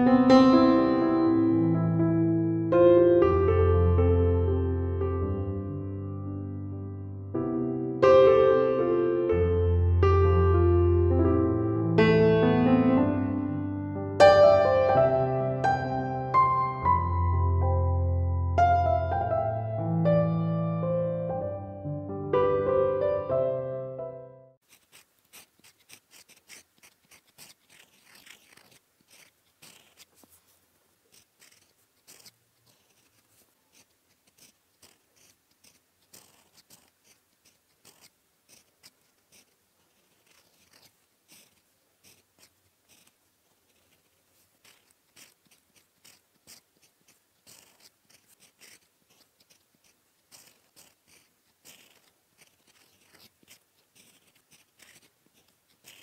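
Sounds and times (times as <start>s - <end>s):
fountain pen scratching on paper: 24.6s - 56.0s.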